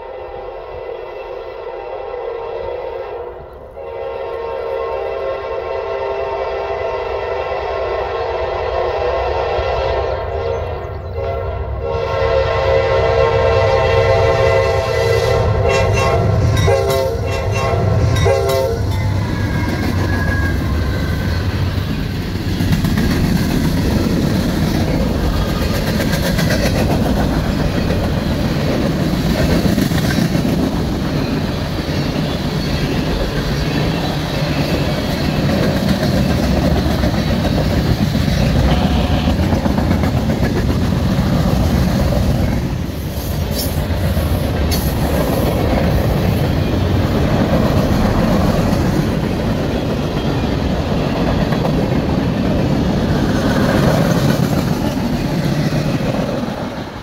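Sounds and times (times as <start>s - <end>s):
locomotive horn blowing: 0.0s - 19.1s, 38.4s - 39.6s
train wheels rumbling on rails: 3.3s - 57.0s.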